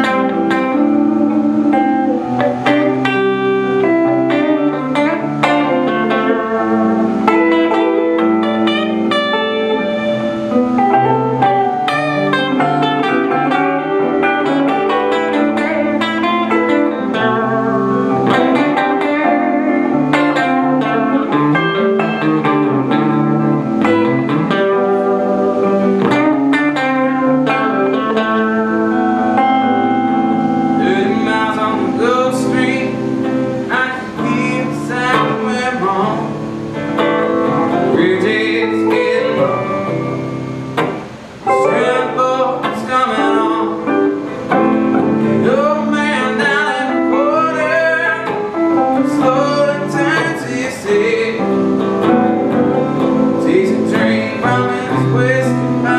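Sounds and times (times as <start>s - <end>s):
electric guitars playing: 0.0s - 55.9s
man singing: 30.5s - 40.2s, 41.5s - 55.9s.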